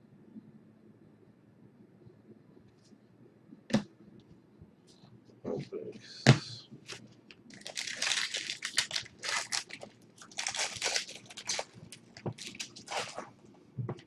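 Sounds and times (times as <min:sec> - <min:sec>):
plastic wrapper crinkling: 0:07.5 - 0:13.4.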